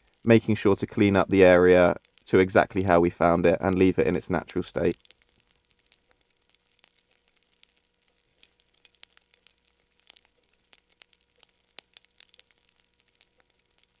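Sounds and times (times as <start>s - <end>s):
campfire crackling and popping: 0.0s - 14.0s.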